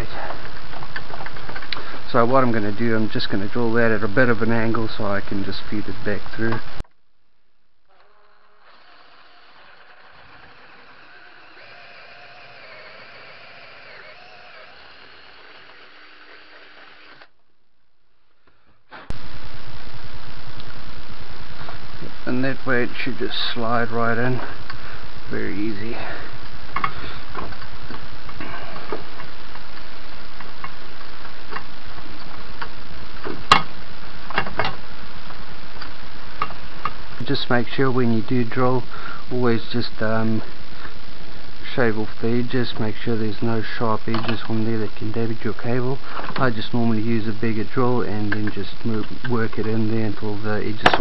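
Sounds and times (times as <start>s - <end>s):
drill whining through metal: 7.9s - 17.3s
steady hiss: 18.3s - 51.0s.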